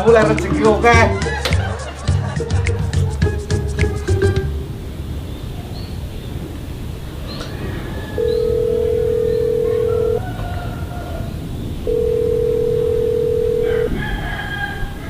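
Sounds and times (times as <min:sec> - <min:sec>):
telephone ringback tone: 0:08.2 - 0:10.2, 0:11.8 - 0:14.0.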